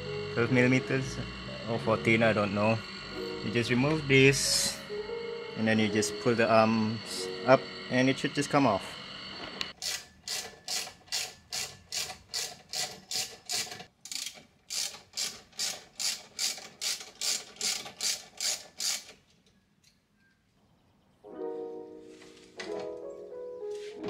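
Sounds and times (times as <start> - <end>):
background music: 0.0 - 8.8, 21.3 - 24.0
ratchet wrench clicking: 9.8 - 19.2.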